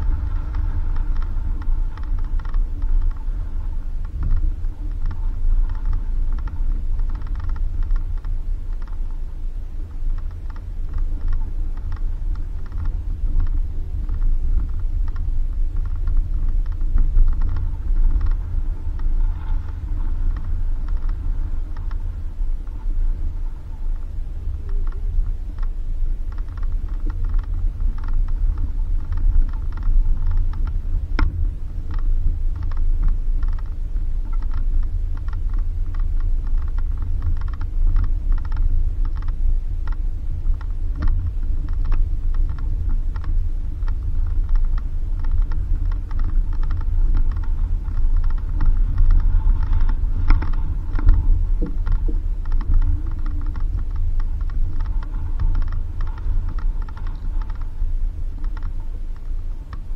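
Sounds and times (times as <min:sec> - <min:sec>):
car engine rumbling: 0:00.0 - 0:59.9
rapid clicking and rattling: 0:00.0 - 0:59.9.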